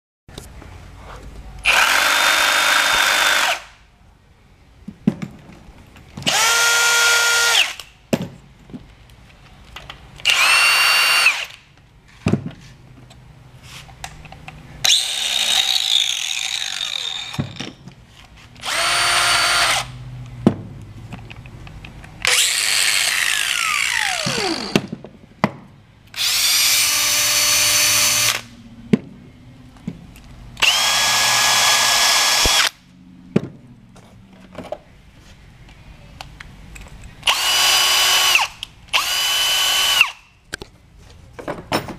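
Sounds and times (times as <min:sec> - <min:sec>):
power tool motor whine: 0:10.3 - 0:11.5, 0:18.6 - 0:19.9, 0:22.3 - 0:24.8, 0:26.2 - 0:28.5, 0:30.6 - 0:32.7, 0:37.3 - 0:40.2.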